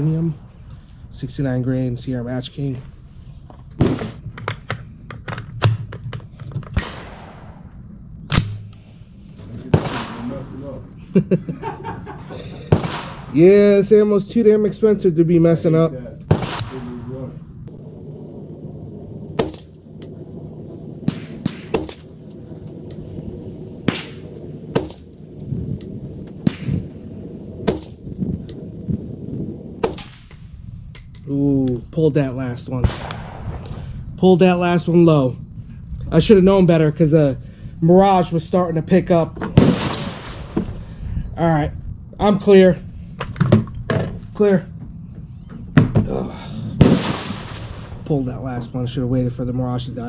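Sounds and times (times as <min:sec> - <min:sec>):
rifle shots: 0:06.7 - 0:07.6, 0:09.7 - 0:10.6, 0:12.7 - 0:13.4, 0:16.3 - 0:30.5, 0:32.8 - 0:33.6, 0:39.6 - 0:40.6, 0:46.8 - 0:47.9
gunshot with echo: 0:06.8 - 0:07.6, 0:09.7 - 0:10.7, 0:12.7 - 0:13.4, 0:16.3 - 0:17.3, 0:19.3 - 0:20.2, 0:21.0 - 0:23.1, 0:23.8 - 0:25.4, 0:26.4 - 0:27.0, 0:27.6 - 0:28.6, 0:29.8 - 0:30.4, 0:32.8 - 0:33.6, 0:39.6 - 0:40.6, 0:46.8 - 0:47.9.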